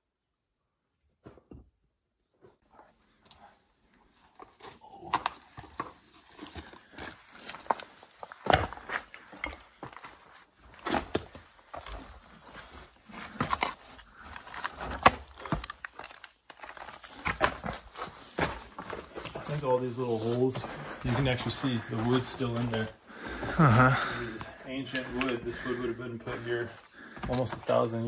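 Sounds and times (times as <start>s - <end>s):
footsteps crunching on gravel: 5.5s - 28.0s.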